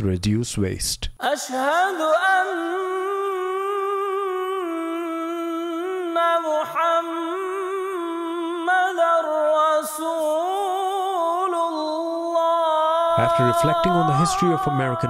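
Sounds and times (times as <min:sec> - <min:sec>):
person humming: 0:13.0 - 0:15.0.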